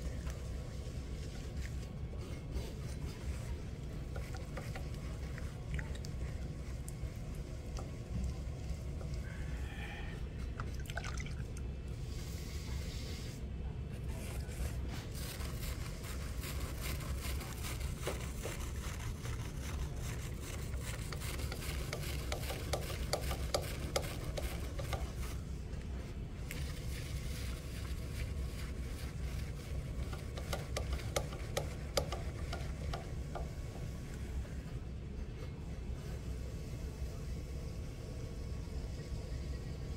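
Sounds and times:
potter's wheel humming: 0.0 - 39.9
small wet crackles: 3.8 - 9.3.

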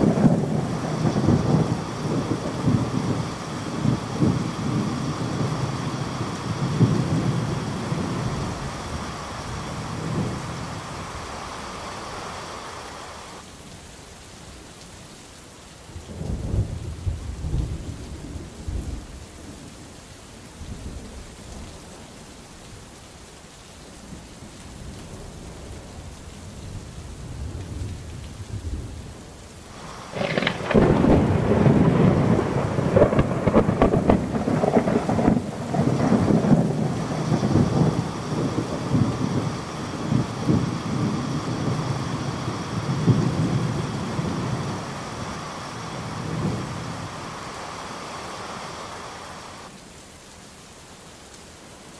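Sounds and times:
thunder rumbling: 0.0 - 13.4, 26.7 - 49.7
steady rain: 0.0 - 51.9.

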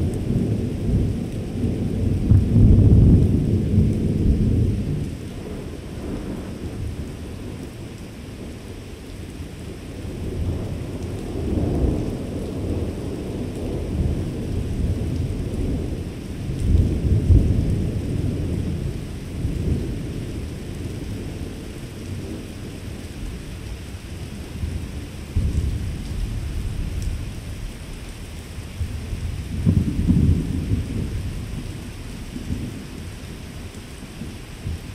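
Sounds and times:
thunder rolling: 0.0 - 5.0, 28.8 - 32.8.

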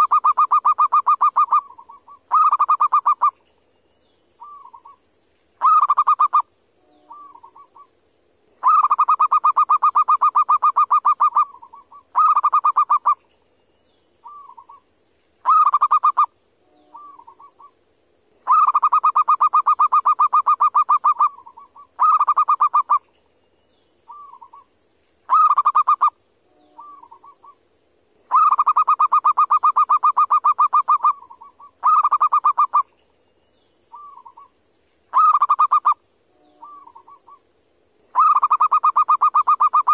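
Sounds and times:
dove cooing with trills: 0.0 - 3.3, 5.6 - 6.4, 7.0 - 7.9, 8.6 - 13.2, 14.2 - 14.8, 15.4 - 17.8, 18.5 - 23.0, 24.1 - 24.7, 25.3 - 26.1, 26.7 - 27.6, 28.3 - 32.9, 33.9 - 34.5, 35.1 - 37.4, 38.1 - 39.9
steady high hiss: 0.0 - 39.9.

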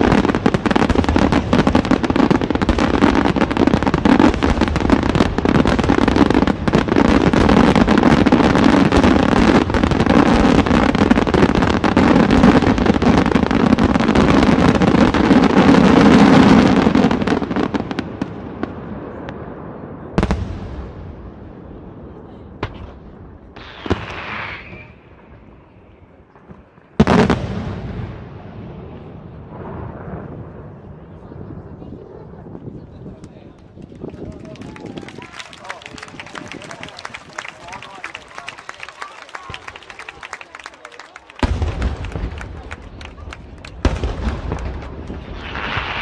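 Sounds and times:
firework bursts and crackling: 0.0 - 46.0
sharp firework bang: 23.6 - 25.0.

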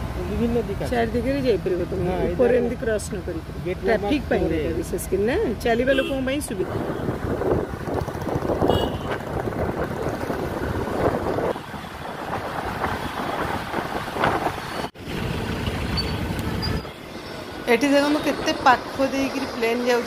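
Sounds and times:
traffic rumble from moving vehicle: 0.0 - 20.0
wind buffeting microphone: 6.6 - 16.8.

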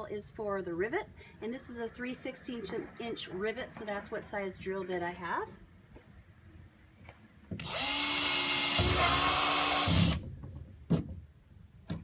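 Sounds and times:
cordless drill whining: 7.6 - 10.2
drill bit cutting plastic: 7.6 - 10.2.

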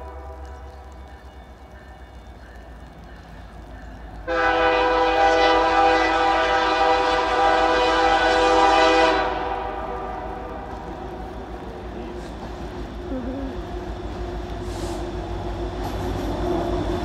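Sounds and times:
locomotive air horn blast: 4.3 - 10.8.

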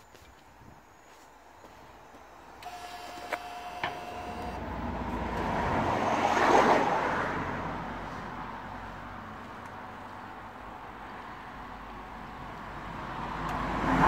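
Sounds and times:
sharp clicks: 2.6 - 4.6
vehicle passing by: 4.0 - 10.0, 12.7 - 14.0.

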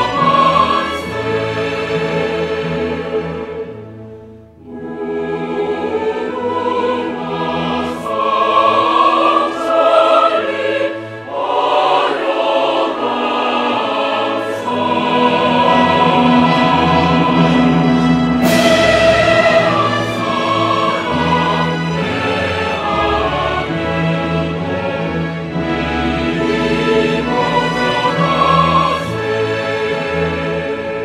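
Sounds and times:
choir singing with orchestra: 0.0 - 31.0.

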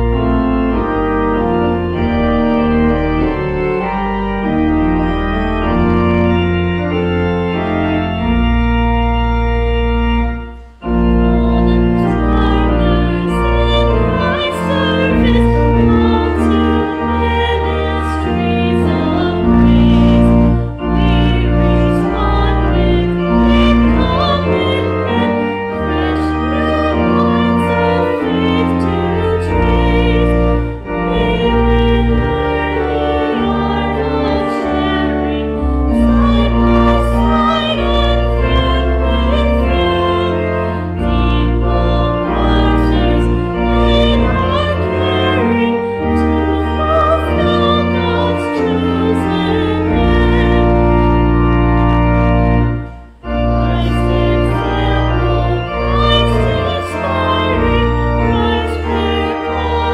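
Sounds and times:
organ music: 0.0 - 59.9.

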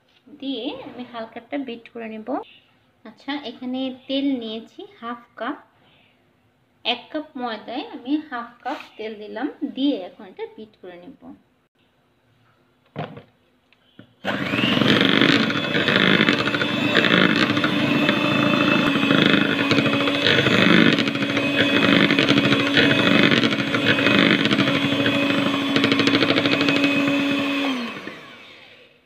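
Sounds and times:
electric hand mixer whisking batter: 14.2 - 29.0.

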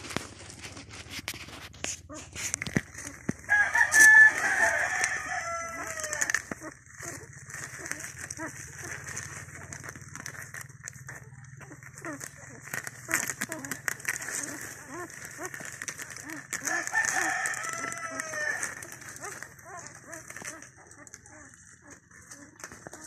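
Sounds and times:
low steady hum: 0.0 - 23.0
rooster crowing: 3.4 - 6.6, 16.6 - 20.3.

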